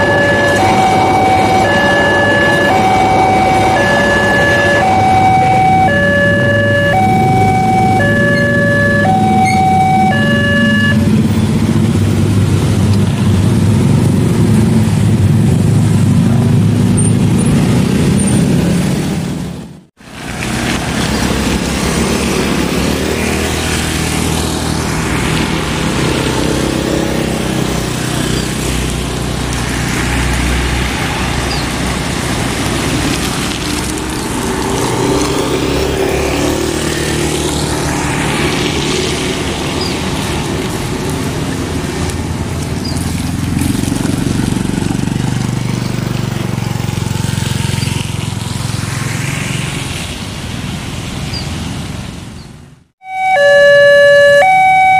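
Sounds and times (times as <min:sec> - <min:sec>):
level crossing two-pitch alarm: 0:00.0 - 0:11.1, 0:53.0 - 0:54.9
motorcycle and car engines: 0:00.0 - 0:54.9
road traffic: 0:00.0 - 0:54.9
vehicles passing by: 0:00.0 - 0:54.9.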